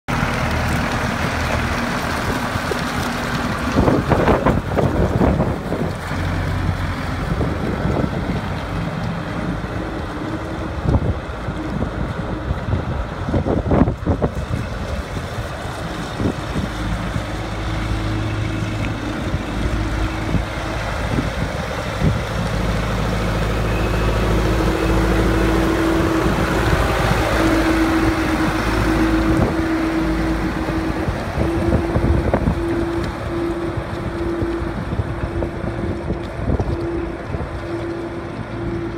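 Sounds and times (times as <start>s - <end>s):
diesel backhoe engine running: 0.0s - 38.9s.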